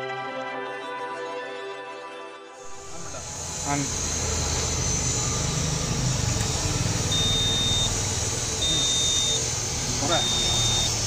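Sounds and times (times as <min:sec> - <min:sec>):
steady low hum: 0:02.6 - 0:11.0
warning buzzer beeping: 0:02.7 - 0:11.0.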